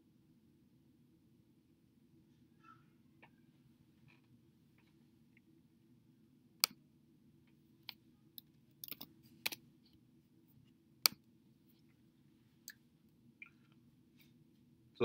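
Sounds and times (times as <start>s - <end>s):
faint steady low hum: 0.0s - 15.0s
computer mouse clicks: 7.8s - 9.6s.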